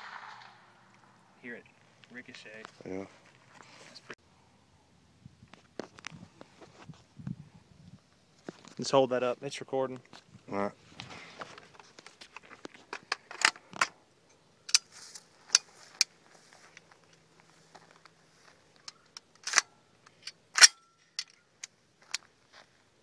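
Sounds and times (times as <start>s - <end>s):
rifle metallic clacks: 18.8s - 21.4s.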